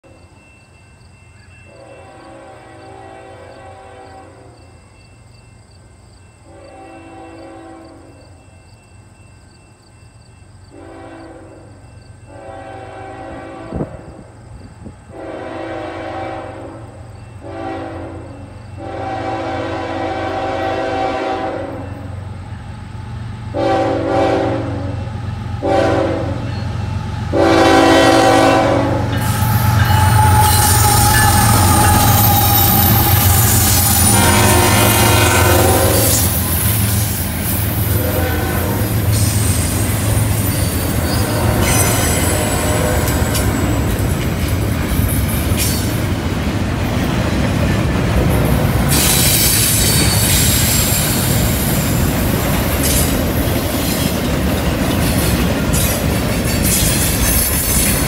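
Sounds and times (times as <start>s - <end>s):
train wheels on rail: 0.0s - 58.0s
locomotive horn blasts: 1.7s - 4.6s, 6.5s - 8.2s, 10.7s - 11.7s, 12.3s - 14.2s, 15.1s - 22.1s, 23.5s - 26.6s, 27.3s - 36.6s, 37.9s - 40.2s, 40.8s - 44.0s
locomotive engine rumble: 25.0s - 58.0s.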